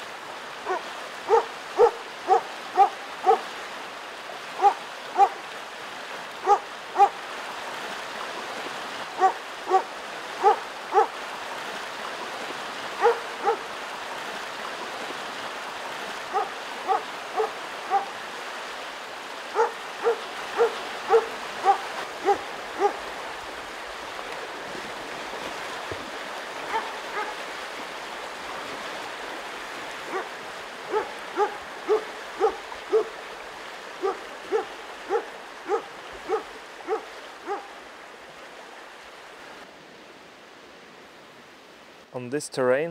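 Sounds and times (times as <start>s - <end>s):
river rushing: 0.0s - 42.9s
dog barking sharply: 0.7s - 3.4s, 4.6s - 5.4s, 6.4s - 7.1s, 9.2s - 11.1s, 13.0s - 13.6s, 16.3s - 18.1s, 19.6s - 23.0s, 26.7s - 27.3s, 34.0s - 37.7s.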